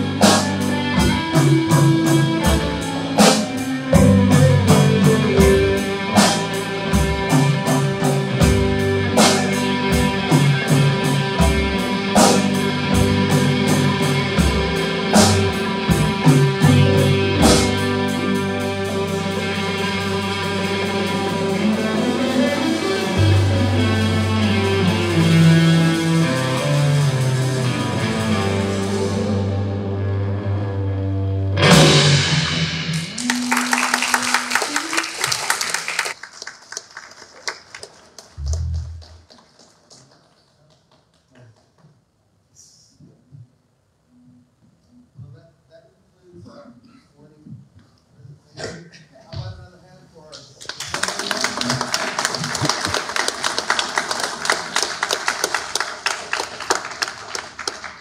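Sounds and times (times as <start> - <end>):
rock band playing: 0.0 - 36.2, 51.0 - 58.0
audience applauding: 32.9 - 41.9, 50.4 - 58.0
low bass note: 38.4 - 39.0.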